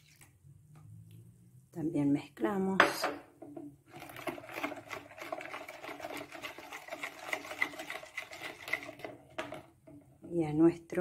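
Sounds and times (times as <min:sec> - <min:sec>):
metal spoon stirring in plastic bowl: 0:03.5 - 0:10.4.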